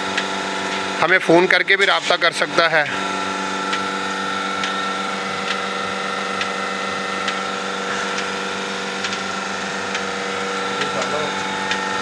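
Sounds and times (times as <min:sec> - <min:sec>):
vacuum pump motor humming: 0:00.0 - 0:12.0
pulsator clicking: 0:05.4 - 0:05.7, 0:06.4 - 0:12.0.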